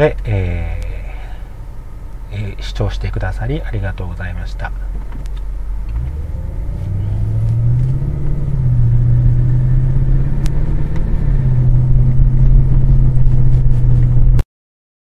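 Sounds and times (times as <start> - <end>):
car engine droning at cruise: 0.0 - 14.4.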